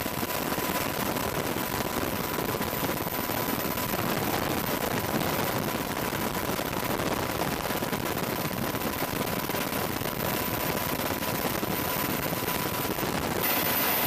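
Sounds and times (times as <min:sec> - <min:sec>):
thin high whine: 0:11.6 - 0:14.0
helicopter rotor chopping: 0:12.1 - 0:14.0.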